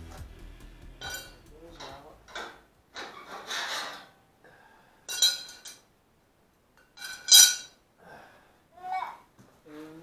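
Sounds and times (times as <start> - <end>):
steel pieces clinking: 1.0 - 4.1, 5.1 - 5.8, 7.0 - 7.8.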